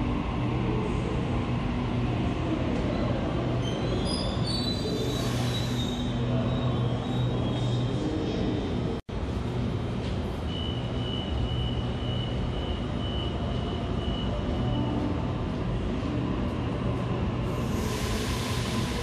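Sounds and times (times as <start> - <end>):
hiss: 17.5 - 19.0.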